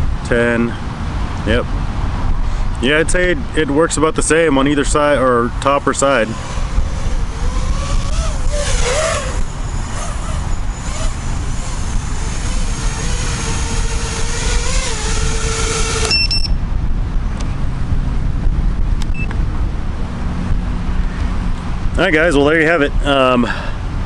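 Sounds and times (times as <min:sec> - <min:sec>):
low wind rumble: 0:00.0 - 0:24.0
quadcopter motors whining: 0:05.8 - 0:16.6.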